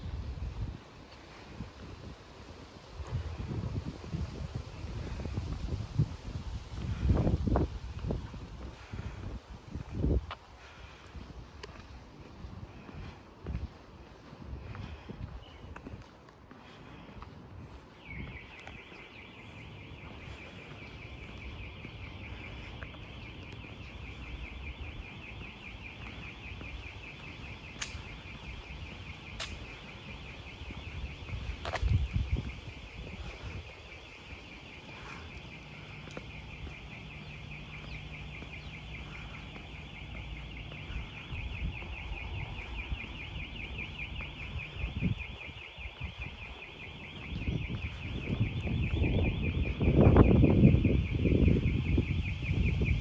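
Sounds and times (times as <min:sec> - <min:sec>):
sharp clicks: 0:27.7 - 0:28.2, 0:29.3 - 0:29.8.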